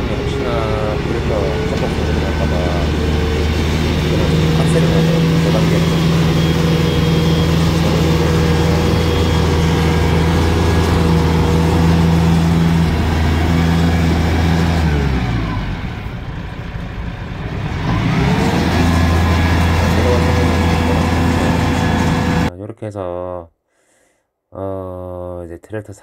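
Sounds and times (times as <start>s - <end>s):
tractor diesel engine running: 0.0s - 22.5s.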